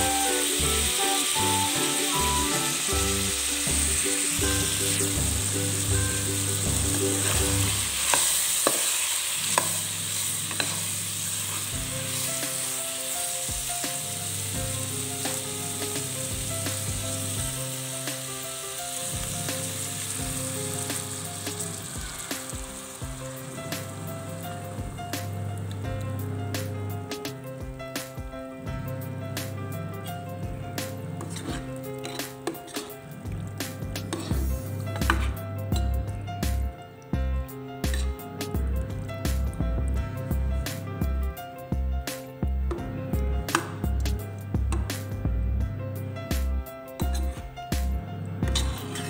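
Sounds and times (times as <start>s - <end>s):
chicken sizzling in oil: 0.0s - 25.9s, 48.4s - 49.0s
background music: 0.0s - 49.0s
utensil knocking against pan: 42.7s - 43.8s.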